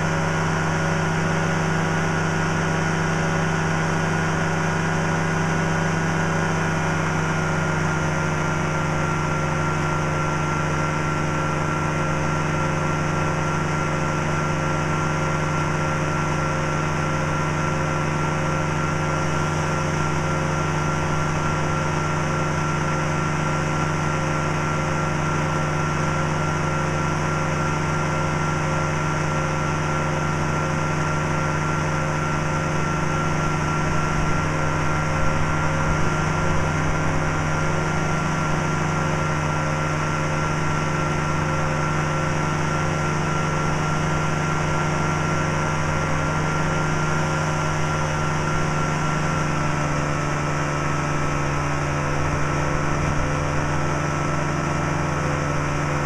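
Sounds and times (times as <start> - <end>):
engine and propeller drone: 0.0 - 56.0.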